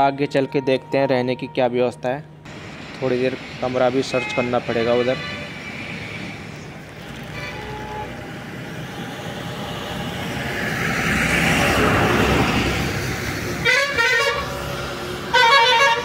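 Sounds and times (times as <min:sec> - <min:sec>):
road traffic noise: 0:02.2 - 0:16.0
vehicle horns honking: 0:04.1 - 0:06.4, 0:07.0 - 0:10.1, 0:13.6 - 0:14.6, 0:15.3 - 0:16.0.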